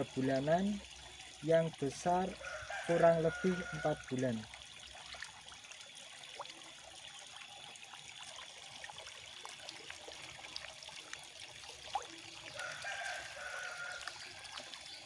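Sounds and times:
trickling and splashing water: 0.0 - 15.0
small plops and ticks: 4.5 - 15.0.

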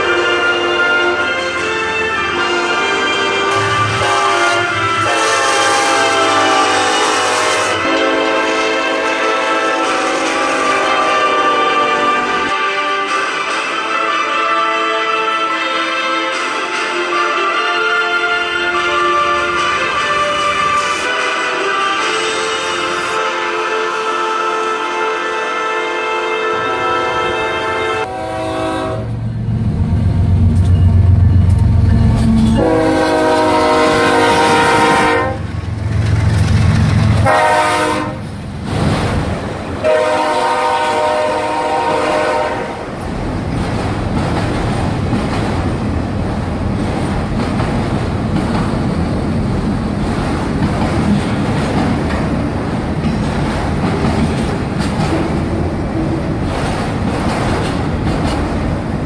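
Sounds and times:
locomotive air horn blasts: 0.0 - 29.2, 32.2 - 35.5, 37.2 - 38.3, 39.8 - 42.9
rail cars rumbling and rattling: 0.0 - 59.0
locomotives rumbling past: 28.3 - 40.3.

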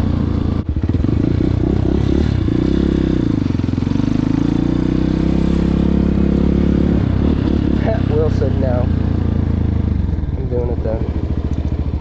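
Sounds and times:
dirt bike engine running: 0.0 - 12.0.

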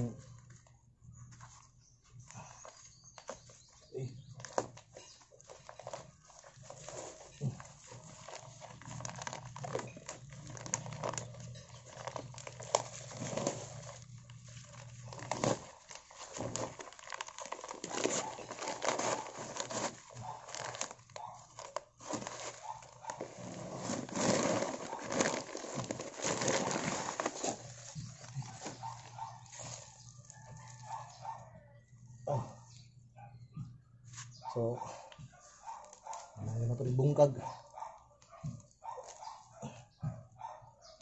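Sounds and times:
plastic sack crinkling and tearing: 4.2 - 31.2.

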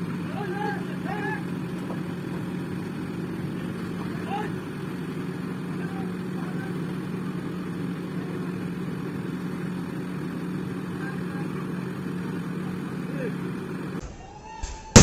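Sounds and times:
excavator diesel engine running: 0.0 - 14.0
distant shouts: 0.0 - 15.0.

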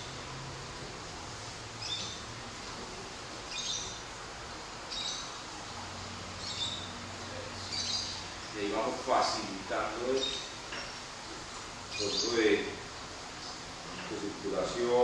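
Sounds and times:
steady background hiss: 0.0 - 15.0
bird chirping: 1.8 - 2.3, 3.5 - 4.0, 4.9 - 5.4, 6.4 - 8.6, 10.1 - 10.6, 11.9 - 12.6.

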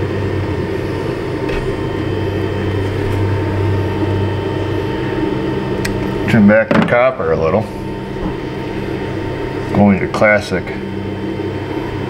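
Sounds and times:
faint high whine: 0.0 - 12.0
low mechanical hum: 0.0 - 12.0.

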